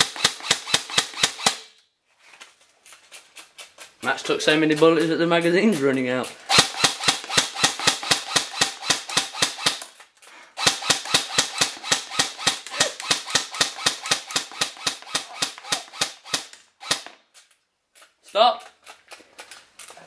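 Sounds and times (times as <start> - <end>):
airsoft gun firing: 0.0 - 1.8, 6.5 - 9.9, 10.6 - 17.2.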